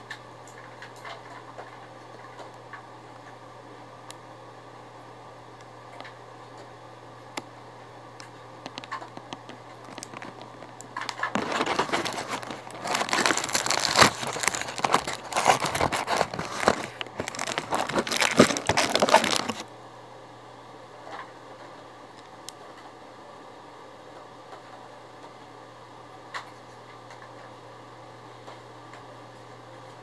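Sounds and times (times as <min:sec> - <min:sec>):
plastic packaging crinkling: 0:08.6 - 0:19.7.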